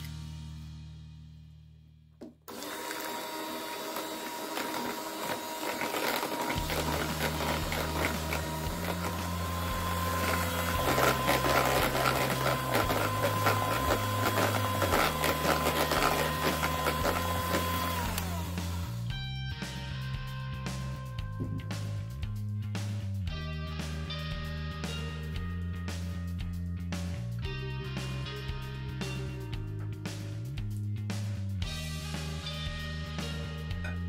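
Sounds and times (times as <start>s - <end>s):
electric hand mixer running: 2.5s - 19.1s
background music: 5.5s - 34.0s.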